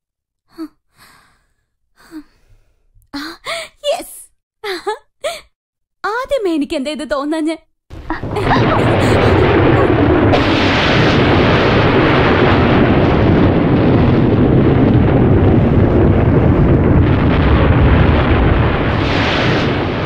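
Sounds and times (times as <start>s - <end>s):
rolling thunder: 7.9s - 20.0s.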